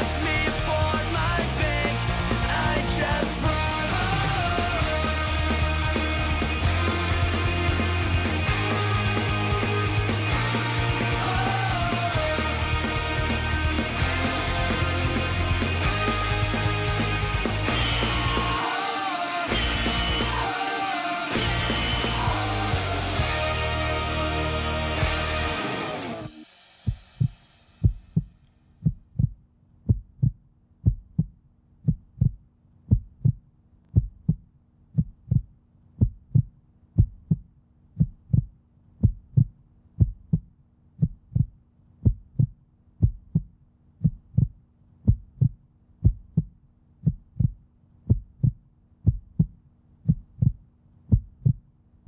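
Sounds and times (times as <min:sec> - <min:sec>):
heartbeat thumps: 0:26.9 - 0:51.7.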